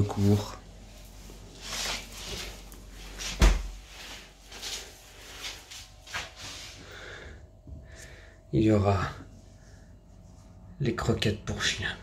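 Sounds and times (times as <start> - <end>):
handling and rustling: 0.0 - 6.8
refrigerator door shutting: 3.3 - 3.8.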